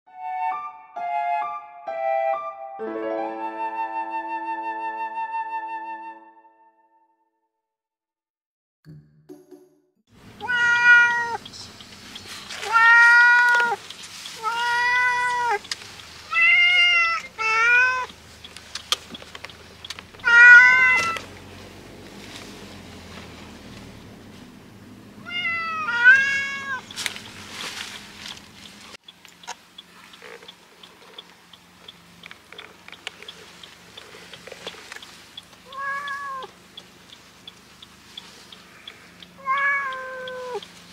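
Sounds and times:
cat meowing loudly: 10.4 - 11.4, 12.6 - 13.8, 14.4 - 15.6, 16.3 - 18.1, 20.2 - 21.2, 25.2 - 26.8, 35.7 - 36.5, 39.4 - 40.6.

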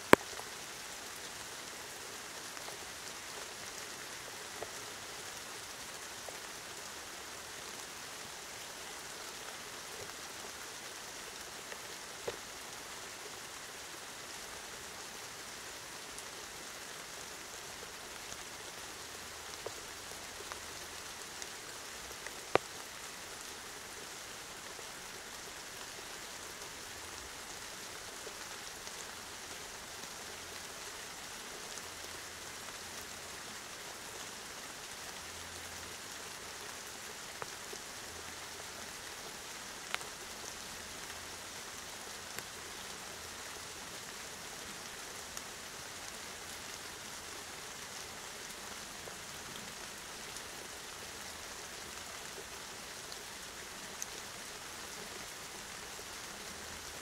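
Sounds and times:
steady rain hiss: 0.0 - 57.0
drip-like ticks: 0.1 - 1.6, 22.2 - 23.2, 39.8 - 41.2.

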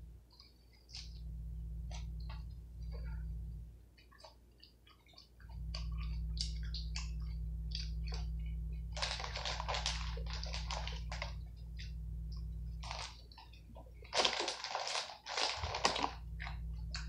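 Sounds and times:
steady low hum: 0.0 - 17.0
plastic bag crinkling: 8.9 - 11.6, 12.8 - 17.0.

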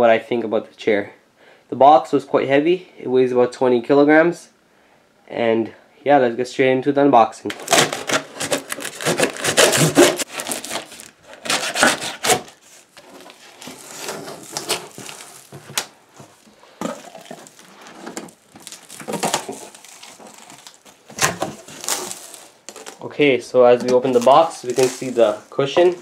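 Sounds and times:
cardboard box tearing open: 7.5 - 23.1, 23.8 - 26.0
cardboard rustling: 7.5 - 26.0.

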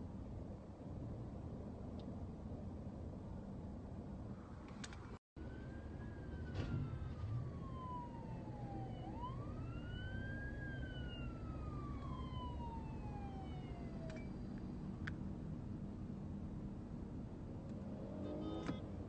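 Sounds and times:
police siren wailing: 5.4 - 14.5.

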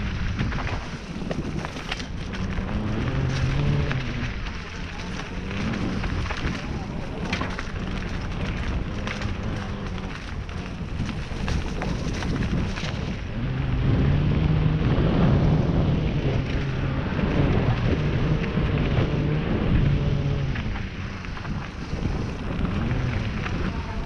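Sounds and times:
low buzzing hum: 0.0 - 24.0
trail rattling and crackling: 0.0 - 24.0
wind rush: 0.0 - 24.0.

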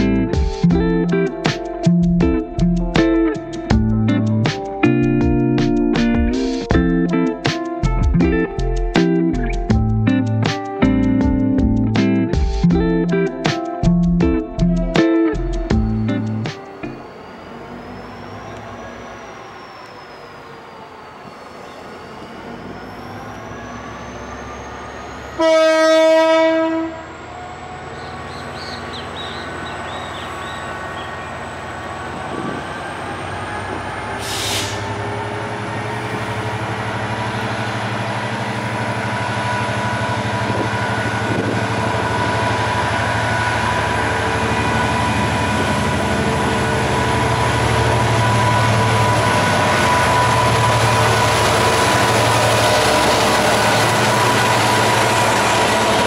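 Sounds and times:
diesel locomotive engine rumble: 0.0 - 56.0
train horn blast: 25.2 - 27.3, 39.1 - 56.0
short hiss: 34.2 - 34.8.

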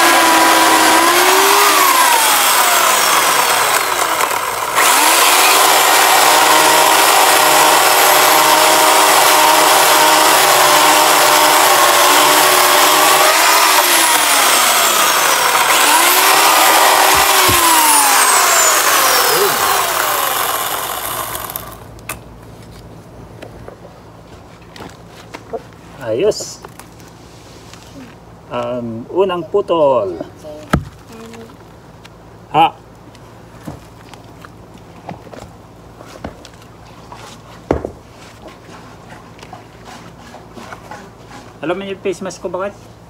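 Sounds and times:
electric chainsaw motor whine: 0.0 - 21.9.

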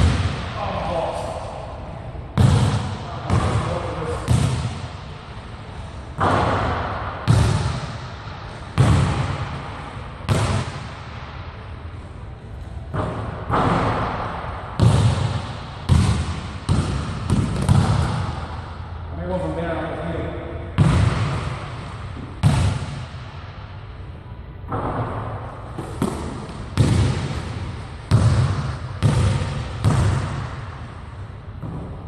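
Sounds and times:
basketball bouncing on hardwood floor: 4.3 - 4.7, 14.8 - 18.2, 22.4 - 23.0, 25.8 - 27.5, 28.1 - 30.5.

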